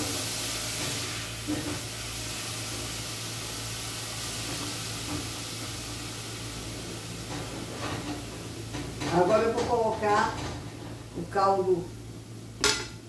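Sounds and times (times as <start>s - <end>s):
meat sizzling in a pot: 0.0s - 13.0s
spoon knocking against pot: 12.6s - 13.0s.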